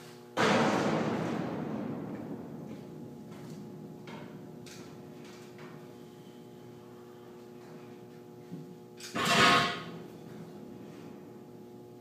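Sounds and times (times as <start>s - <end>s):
loud metal clang: 0.4s - 5.8s, 9.1s - 10.0s
footsteps on steel stairs: 2.1s - 5.8s.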